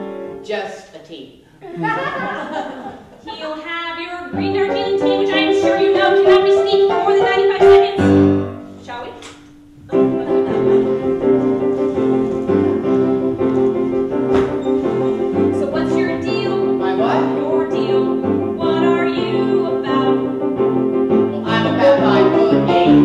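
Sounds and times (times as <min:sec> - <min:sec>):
piano playing sustained chords: 0:00.0 - 0:00.4, 0:04.4 - 0:08.8, 0:09.6 - 0:23.0.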